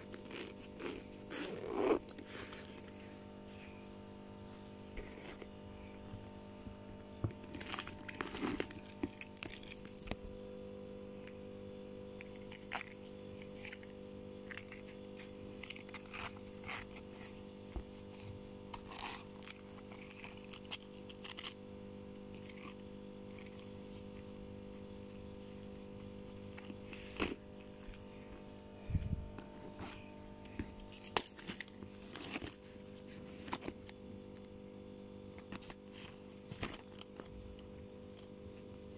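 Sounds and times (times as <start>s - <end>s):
steady background hum: 0.0s - 38.9s
plastic packaging crinkling: 7.3s - 10.3s, 35.3s - 37.8s.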